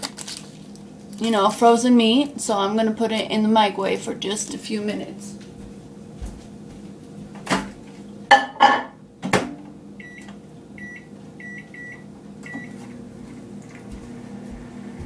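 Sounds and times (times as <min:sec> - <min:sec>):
microwave oven humming: 0:00.0 - 0:15.0
keypad beeps: 0:10.0 - 0:12.8.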